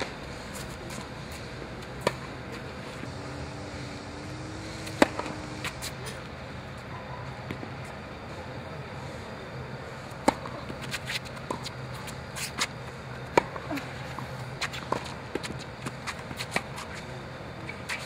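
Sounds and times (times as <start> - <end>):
shoes scuffing court: 0.0 - 3.1, 4.7 - 8.2, 10.0 - 18.0
racket hitting tennis ball: 1.8 - 3.0, 4.7 - 6.3, 10.1 - 17.1
tennis ball bouncing: 1.8 - 3.1, 4.8 - 6.0, 10.1 - 17.0.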